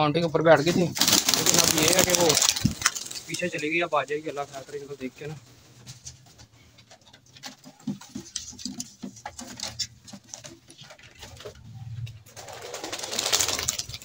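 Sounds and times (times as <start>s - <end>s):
sharp taps and knocks: 5.9s - 11.5s.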